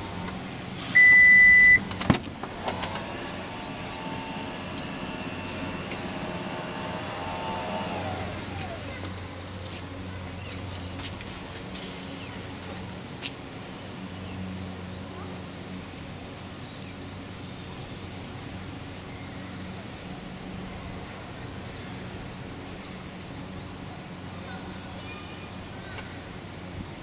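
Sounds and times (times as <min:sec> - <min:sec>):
low hum: 0:00.0 - 0:09.6
songbird chirping: 0:03.4 - 0:09.2.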